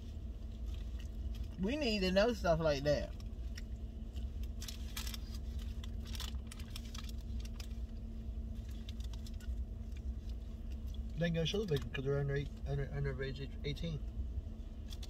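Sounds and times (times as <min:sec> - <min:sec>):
low rumble of car: 0:00.0 - 0:15.0
paper wrapper crinkling: 0:03.2 - 0:10.9.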